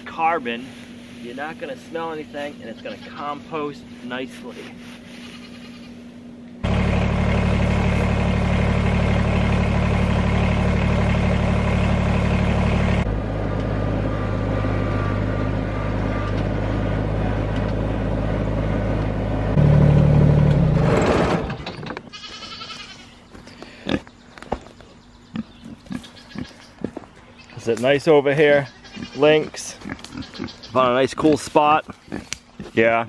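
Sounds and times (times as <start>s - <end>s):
tractor engine running: 6.6s - 22.0s.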